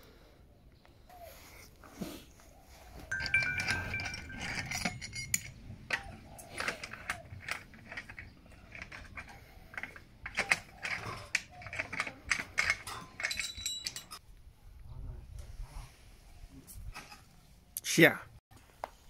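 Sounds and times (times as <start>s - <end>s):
metal clamps clinking and clanking: 3.1s - 14.2s.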